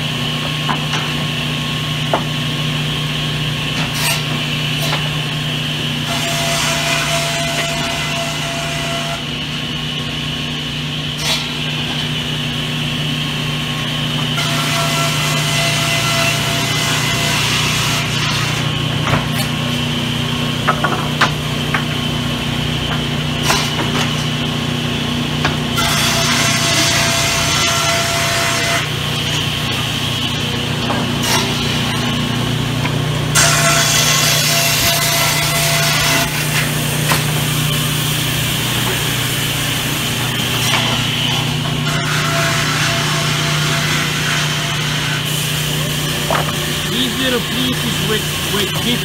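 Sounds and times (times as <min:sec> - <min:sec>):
sawmill saw motor hum: 0:00.0 - 0:49.0
saw cutting timber hiss: 0:46.3 - 0:49.0.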